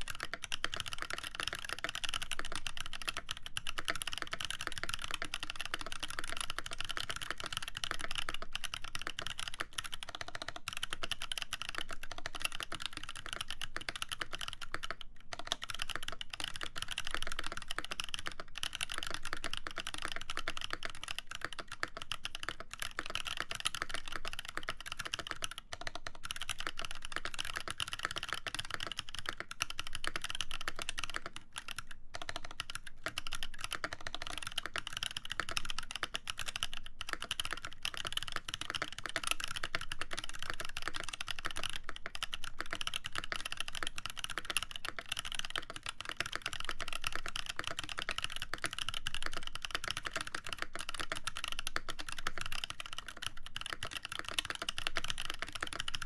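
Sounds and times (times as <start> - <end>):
fast typing on mechanical keyboard: 0.0 - 56.0.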